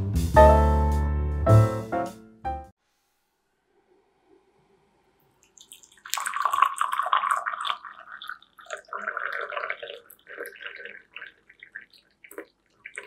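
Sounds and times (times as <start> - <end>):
water pouring into ceramic mug: 5.4 - 13.0.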